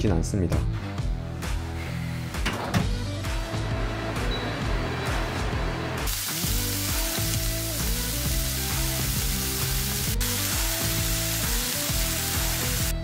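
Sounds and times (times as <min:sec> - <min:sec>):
background music: 0:00.0 - 0:13.0
meat sizzling in a pan: 0:06.1 - 0:13.0.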